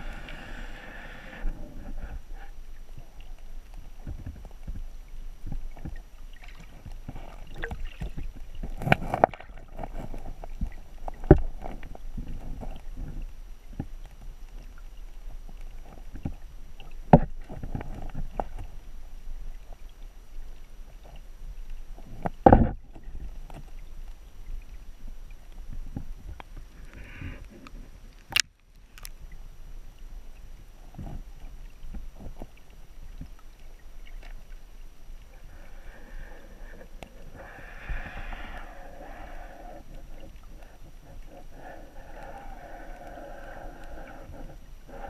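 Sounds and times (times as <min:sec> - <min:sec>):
underwater rush of flowing water: 0:00.0 - 0:45.0
underwater clicks and knocks: 0:04.0 - 0:06.0, 0:06.6 - 0:14.0, 0:15.8 - 0:18.7, 0:22.0 - 0:23.8.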